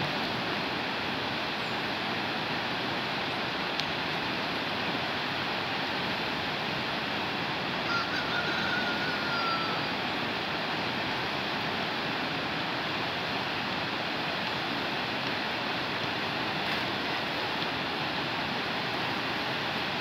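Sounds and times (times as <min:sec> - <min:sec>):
river rushing over rapids: 0:00.0 - 0:20.0
faint high whistle tone: 0:07.9 - 0:10.0.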